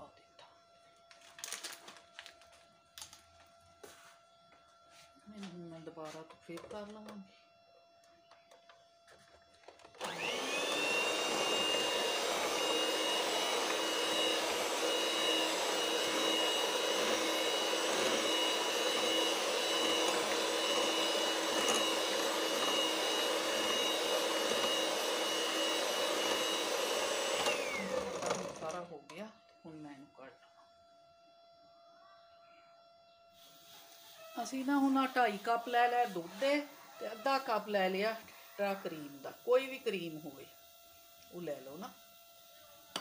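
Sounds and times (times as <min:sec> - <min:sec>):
electric hand mixer whining: 0:06.0 - 0:30.0, 0:33.4 - 0:43.0.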